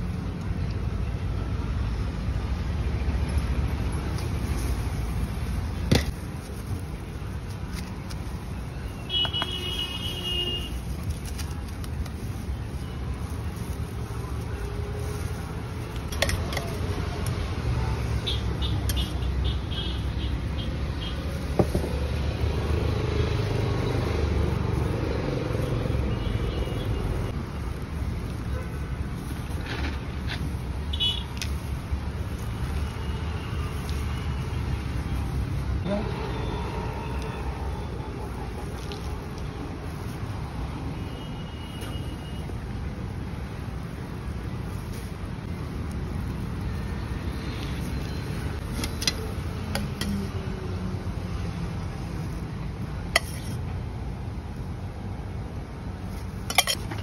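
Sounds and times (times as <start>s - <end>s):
street noise rumble: 0.0s - 57.0s.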